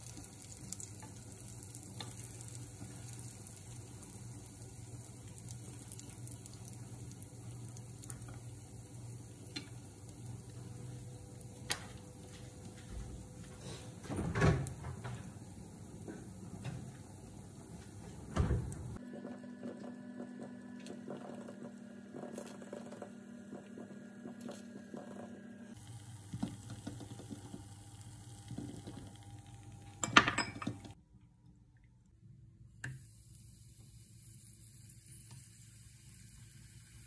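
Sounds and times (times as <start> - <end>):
food frying in oil: 0.0 - 12.5, 19.6 - 30.6, 33.0 - 37.0
steady hum: 2.4 - 31.0.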